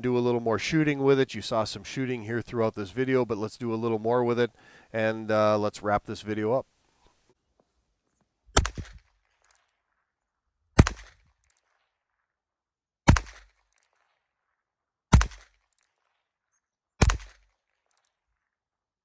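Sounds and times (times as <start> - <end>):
revolver shots: 8.6 - 9.0, 10.8 - 11.2, 17.0 - 17.4.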